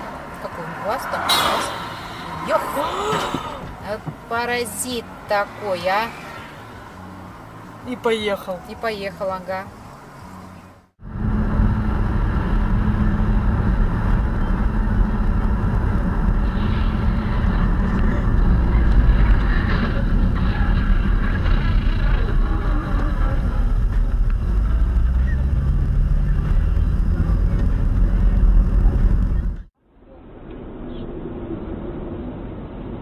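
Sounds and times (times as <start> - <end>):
car road and engine noise: 0.0 - 33.0
constant low hum: 11.0 - 33.0.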